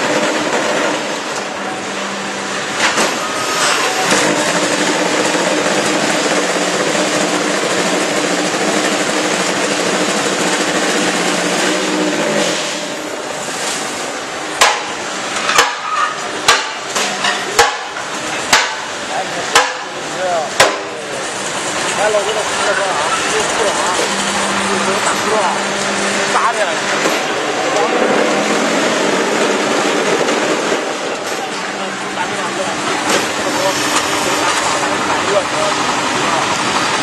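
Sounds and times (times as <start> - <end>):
block making machine droning: 0.0 - 37.0.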